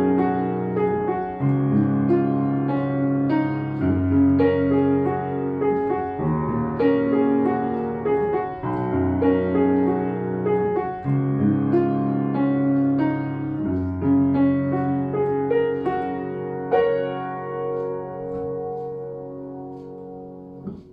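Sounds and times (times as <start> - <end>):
upright piano slow chords: 0.0 - 20.9.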